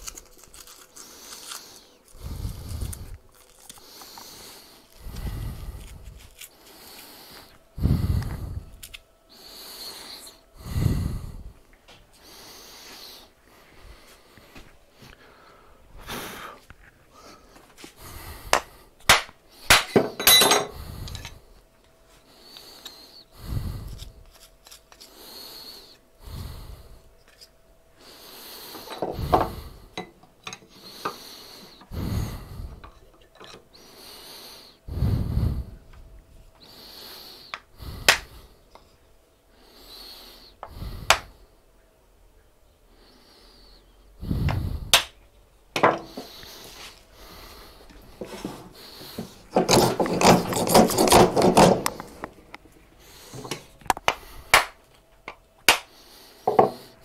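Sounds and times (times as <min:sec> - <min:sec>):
tools and wood clattering: 0:19.7 - 0:21.4, 0:45.8 - 0:46.3, 0:48.2 - 0:52.3
breath puffs on microphone: 0:34.6 - 0:35.9, 0:43.7 - 0:45.0.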